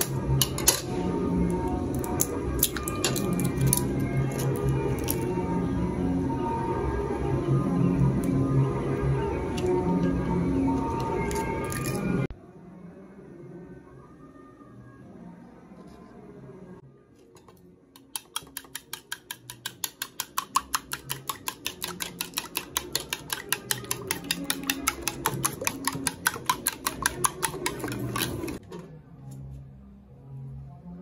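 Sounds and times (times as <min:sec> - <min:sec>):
spoon beating eggs in bowl: 0:17.4 - 0:28.6.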